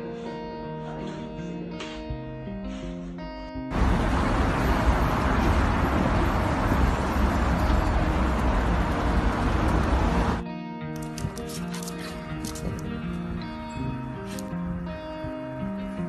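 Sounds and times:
loud rushing with deep rumble: 0:03.7 - 0:10.4
guitar music: 0:07.6 - 0:16.0.

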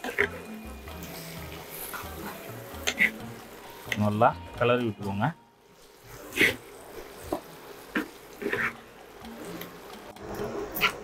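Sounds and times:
spatula scraping in frying pan: 0:01.1 - 0:03.5, 0:05.8 - 0:08.9.

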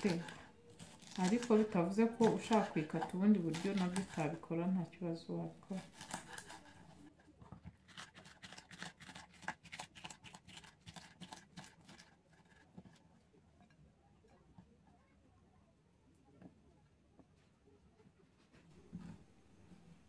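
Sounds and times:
knife cutting on wooden board: 0:00.0 - 0:04.3, 0:05.8 - 0:07.0, 0:07.7 - 0:12.9.

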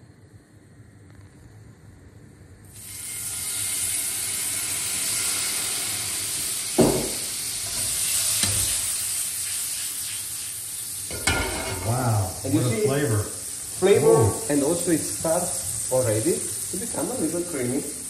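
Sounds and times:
wine sizzling in hot fat: 0:02.6 - 0:18.0
thump: 0:06.8 - 0:07.2.

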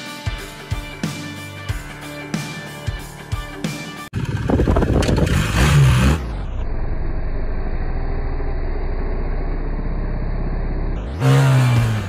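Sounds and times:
motorcycle engine revving: 0:04.1 - 0:12.0.

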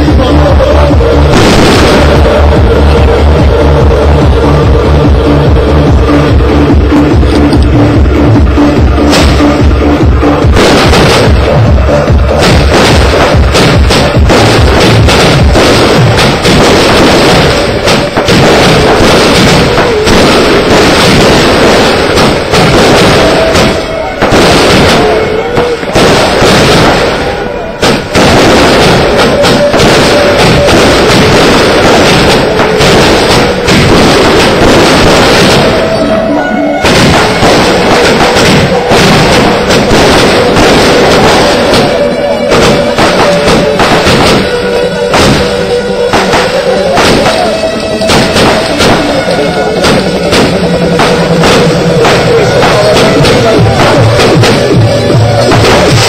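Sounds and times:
fireworks bangs and crackle: 0:00.0 - 0:56.0
loud music: 0:00.0 - 0:56.0.

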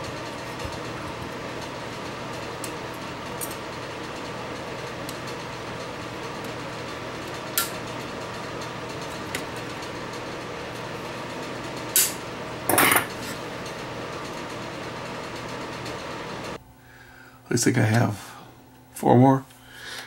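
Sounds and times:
steady hum: 0:00.0 - 0:20.0.

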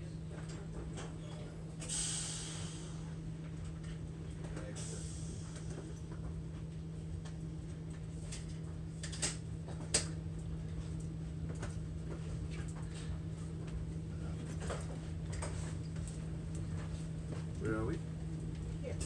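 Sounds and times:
train cabin low hum: 0:00.0 - 0:19.0.

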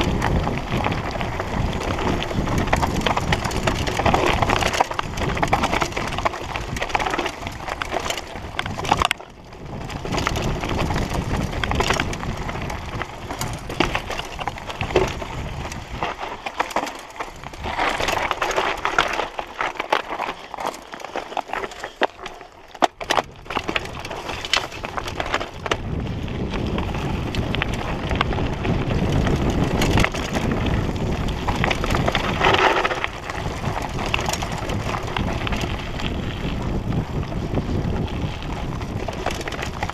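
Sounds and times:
bike rattling and clattering: 0:00.0 - 0:39.9
tyres crunching over stones: 0:00.0 - 0:39.9.

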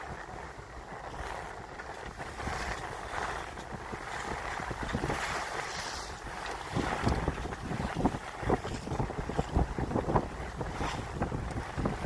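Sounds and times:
water rushing along hull: 0:00.0 - 0:12.0
wind buffeting microphone: 0:00.0 - 0:12.0.

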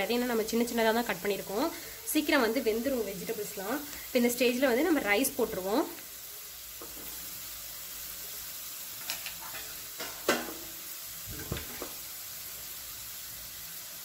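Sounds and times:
vegetables sizzling in hot oil: 0:00.0 - 0:14.0.

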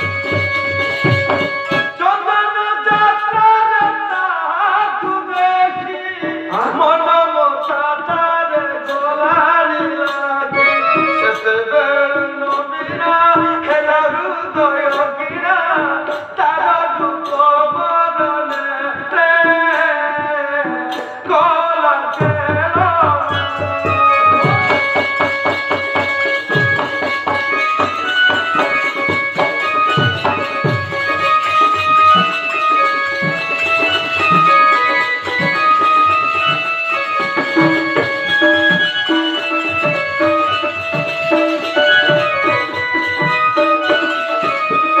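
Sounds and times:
drumming: 0:00.0 - 0:16.5, 0:17.1 - 0:45.0
folk stage music: 0:00.0 - 0:45.0.

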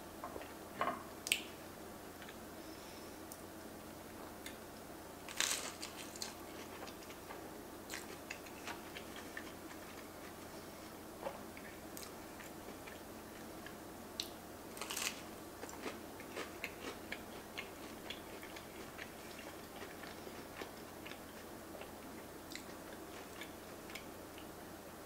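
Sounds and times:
chewing crunchy sandwich: 0:05.3 - 0:10.4, 0:11.6 - 0:21.9.

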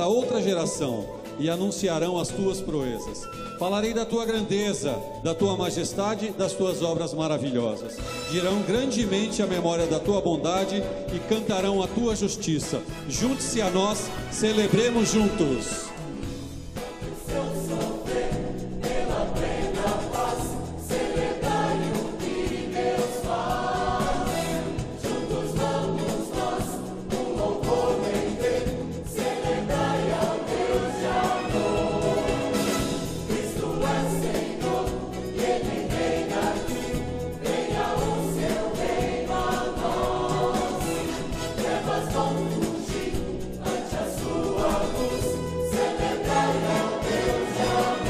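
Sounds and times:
mixed choir singing gospel: 0:12.8 - 0:48.0.

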